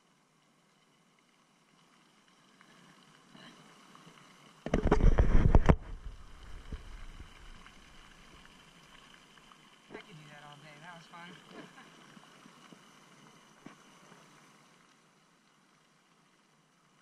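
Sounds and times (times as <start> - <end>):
rumbling buffeting on microphone: 4.7 - 8.3.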